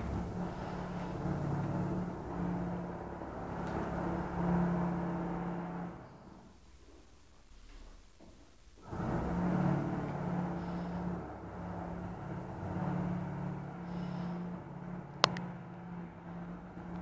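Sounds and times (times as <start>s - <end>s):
motor humming: 0.0s - 6.3s, 8.8s - 14.6s.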